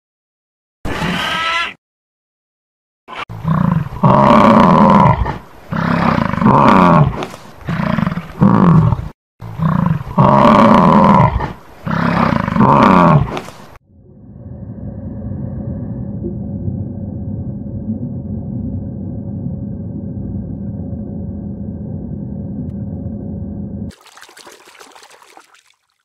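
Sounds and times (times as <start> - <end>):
large animal roaring: 3.1 - 13.4.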